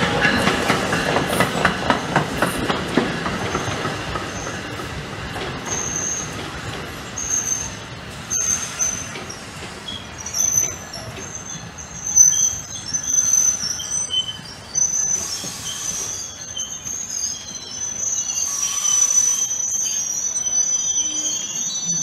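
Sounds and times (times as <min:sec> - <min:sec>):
train wheels squealing: 0:00.0 - 0:22.0
hiss bursts: 0:07.3 - 0:11.4, 0:13.5 - 0:17.3, 0:18.0 - 0:19.7.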